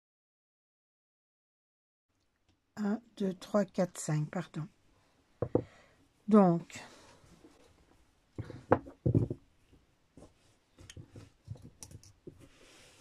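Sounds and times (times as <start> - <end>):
dull thumps: 5.4 - 5.7, 8.4 - 9.4.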